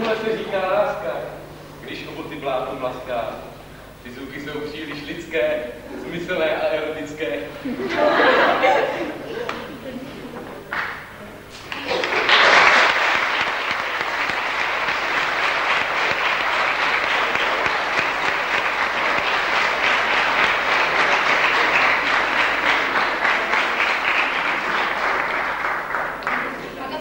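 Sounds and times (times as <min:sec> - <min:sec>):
audience applauding: 0:11.7 - 0:27.0.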